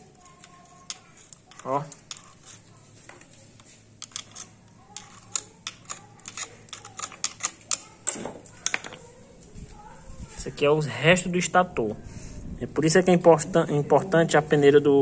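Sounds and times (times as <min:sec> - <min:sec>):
screwdriver clicking and scraping metal: 0:00.0 - 0:09.0.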